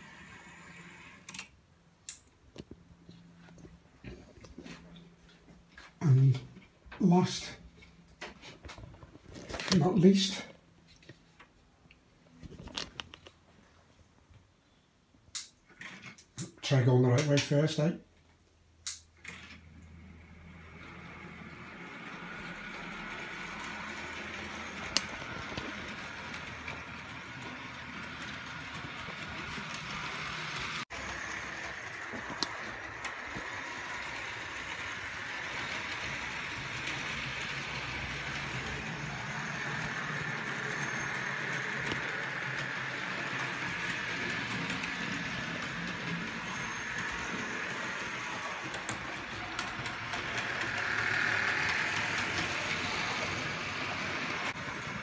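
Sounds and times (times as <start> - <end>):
small electric motor whirring: 20.4 - 55.0
wagon wheels rumbling on track: 21.5 - 55.0.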